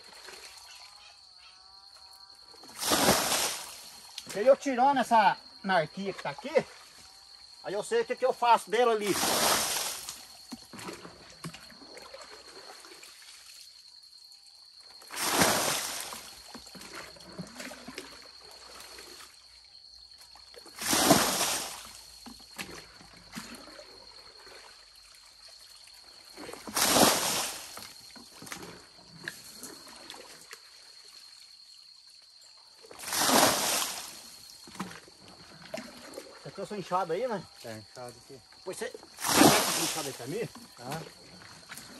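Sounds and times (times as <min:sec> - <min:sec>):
bucket of water splashing out: 0:02.6 - 0:04.4, 0:09.0 - 0:13.7, 0:15.0 - 0:19.4, 0:20.5 - 0:24.8, 0:26.3 - 0:30.6, 0:32.9 - 0:36.7, 0:39.0 - 0:41.9.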